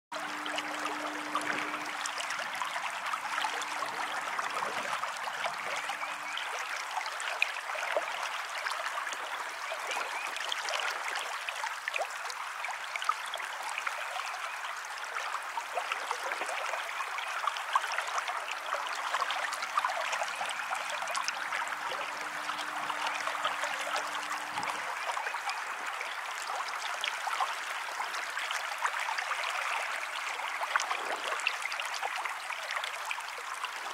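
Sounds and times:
river water babbling: 0.1 - 33.9.

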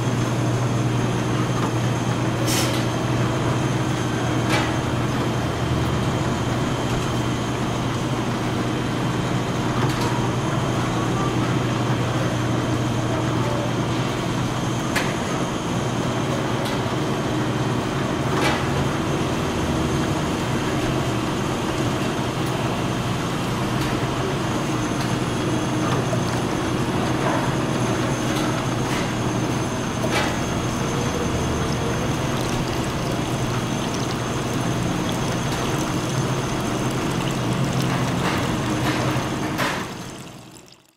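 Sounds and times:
bottle-filling machine humming: 18.9 - 40.9.

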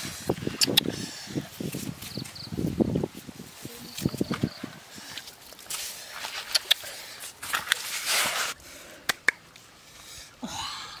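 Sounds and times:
banana leaf rustling and crinkling: 1.5 - 8.6.

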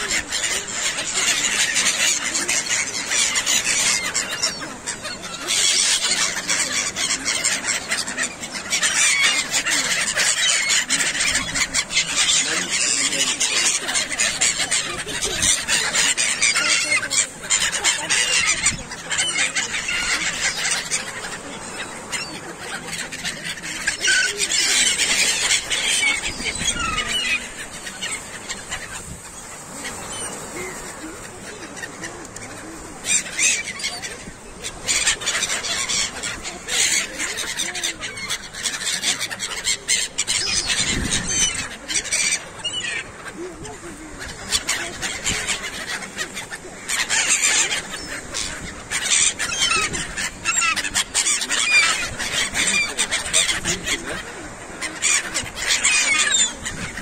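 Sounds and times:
gulls calling: 0.0 - 57.0.

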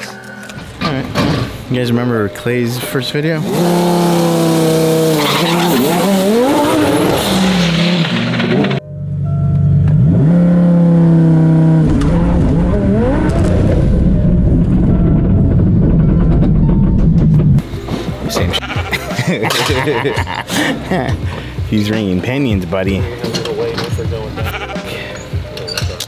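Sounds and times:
car engine at full throttle: 3.4 - 8.8, 9.5 - 17.8.

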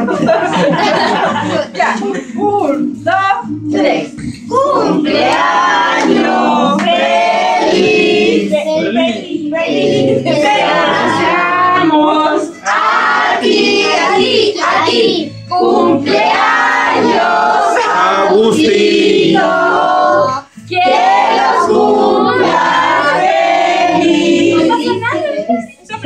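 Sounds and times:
group singing birthday song: 0.0 - 26.0
clap-like beat: 5.0 - 7.8.

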